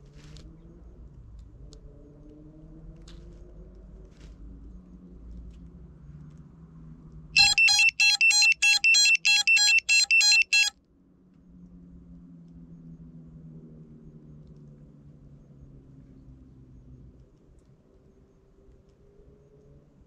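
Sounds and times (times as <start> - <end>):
rapid electronic beeps: 7.4 - 10.7.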